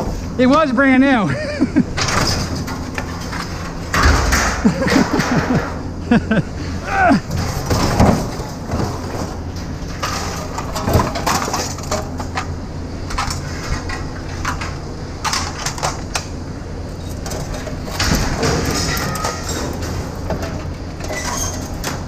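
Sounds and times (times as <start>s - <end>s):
steady low hum: 0.0s - 22.0s
scrap metal clattering: 7.3s - 12.5s, 17.0s - 22.0s.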